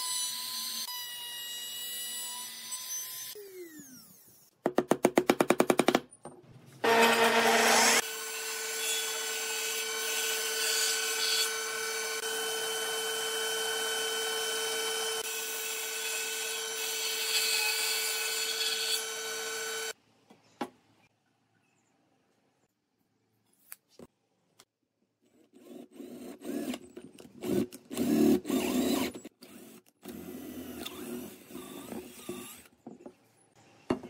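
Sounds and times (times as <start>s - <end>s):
loud burst of tool noise: 6.8s - 9.2s
table saw cutting wood: 6.8s - 20.0s.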